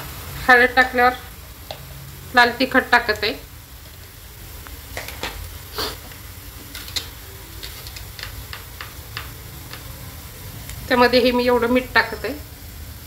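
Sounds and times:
onions sizzling in a pan: 0.0 - 13.0.

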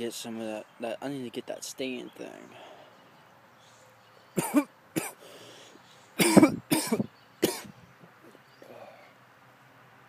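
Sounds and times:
man coughing: 4.4 - 5.2, 6.2 - 7.7.

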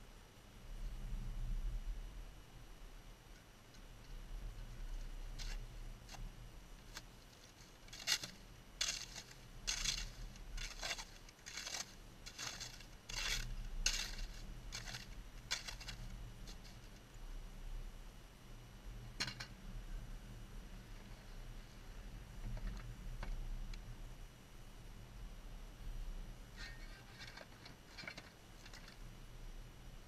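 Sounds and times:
steady low hum: 0.0 - 30.0
snow shovel scraping on ice: 6.9 - 16.8.

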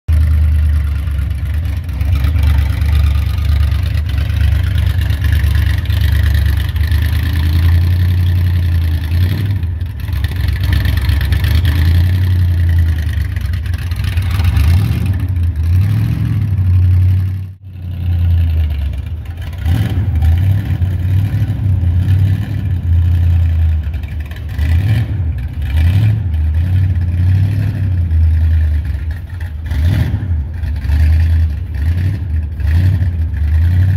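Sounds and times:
pickup truck engine idling and revving: 0.0 - 33.9.

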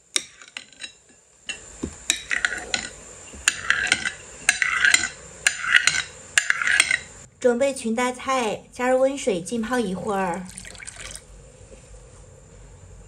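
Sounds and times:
knife scraping through tofu: 2.3 - 7.1.

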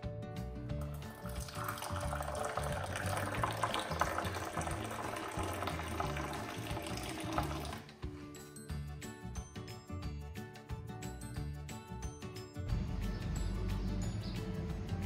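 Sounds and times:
tea pouring into glass cup: 0.8 - 7.9.

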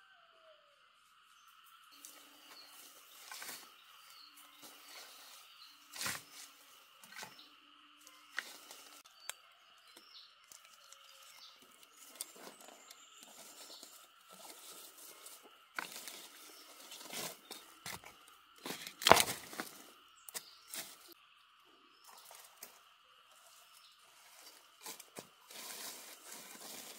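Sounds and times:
insect drone: 0.0 - 26.9
leaves and stalks rustling: 1.1 - 21.2, 21.9 - 26.9
stalks snapping: 17.8 - 20.5.

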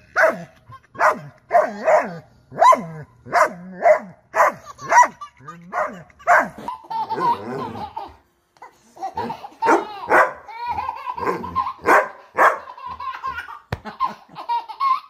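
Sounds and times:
baby laughing: 0.0 - 2.0, 4.4 - 15.0
dog barking: 0.2 - 5.2, 5.8 - 6.6, 9.6 - 10.4, 11.2 - 12.7.

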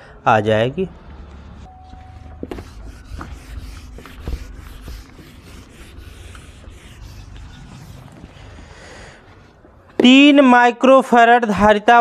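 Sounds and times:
duster rubbing whiteboard: 2.4 - 9.5.

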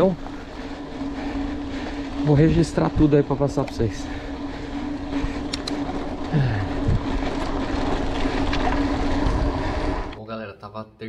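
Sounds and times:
constant hum: 0.0 - 10.3
wind rush on microphone: 0.2 - 10.2.

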